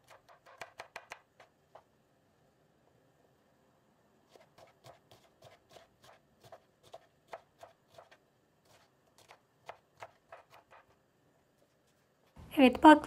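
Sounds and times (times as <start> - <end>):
knife chopping on wooden board: 0.0 - 1.5, 4.3 - 10.9.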